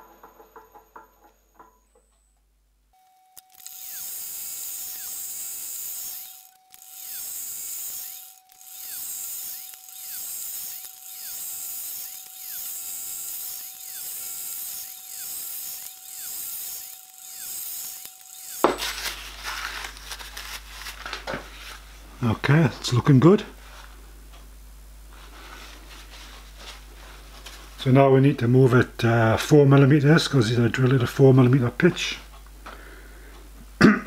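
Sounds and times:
drill press whining: 3.3 - 20.4.

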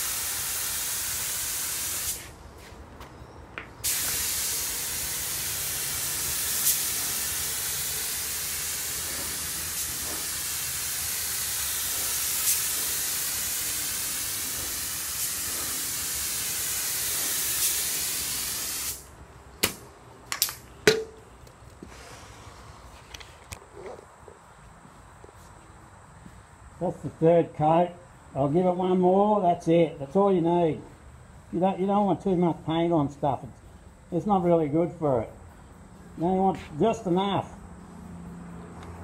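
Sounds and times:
spray gun hissing: 0.0 - 2.4, 3.8 - 19.1
sharp clicks and knocks: 19.6 - 21.8.

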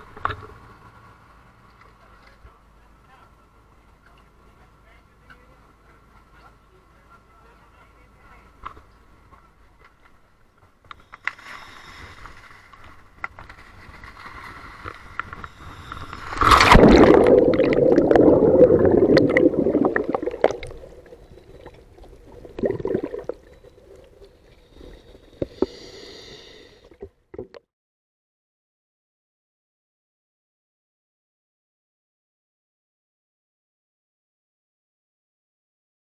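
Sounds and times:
bubbling and hissing: 15.4 - 27.6
water splash: 16.2 - 24.0
underwater rushing bubbles: 16.2 - 24.4.

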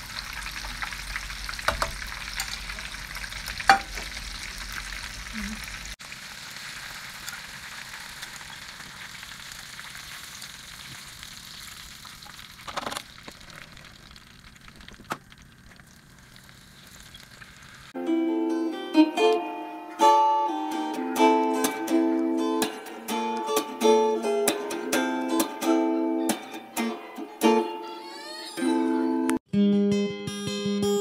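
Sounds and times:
deep-frying sizzle: 0.0 - 18.0
plucked string music: 18.0 - 31.0.

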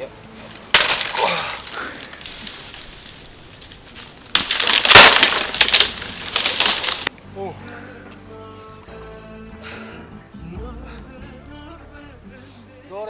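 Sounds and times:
branches cracking and snapping: 0.0 - 8.4.

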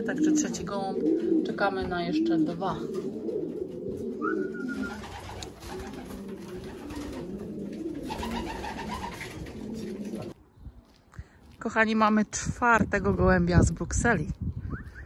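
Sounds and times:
pigeons cooing: 0.0 - 10.4.

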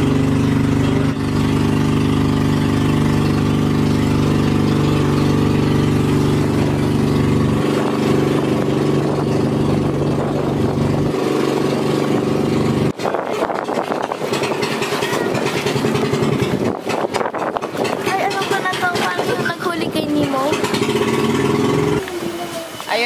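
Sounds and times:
boat engine drone: 0.0 - 23.0
water noise: 0.0 - 23.0
wind noise: 5.8 - 20.3.

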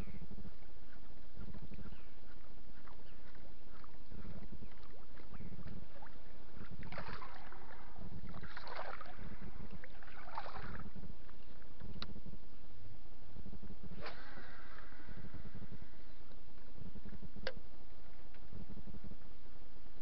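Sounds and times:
lure splashing on water: 3.8 - 10.9.

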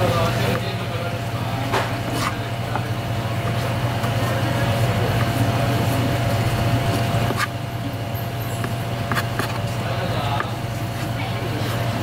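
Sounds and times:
low machine hum: 0.0 - 12.0
knife slicing meat: 6.8 - 7.6, 8.2 - 12.0.

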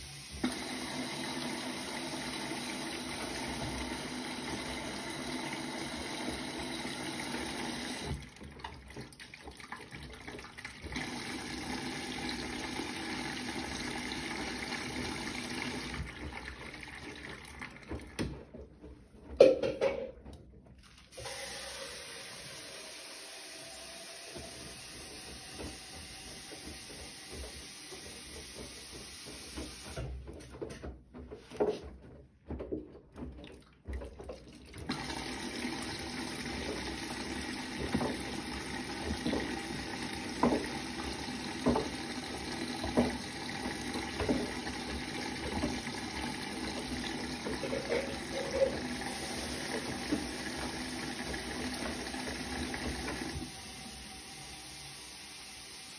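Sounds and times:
washing machine water sloshing: 0.1 - 30.5, 31.4 - 55.9.

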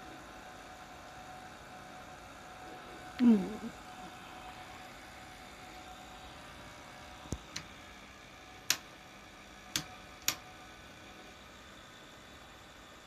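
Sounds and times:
faint hum and hiss: 0.0 - 13.0
sharp clicks: 9.7 - 10.4.

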